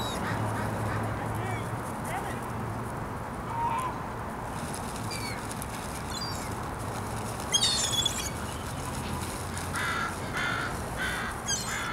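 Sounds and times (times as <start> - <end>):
high-pitched bird calls: 7.5 - 8.4, 11.4 - 11.9
crows cawing: 9.7 - 11.9.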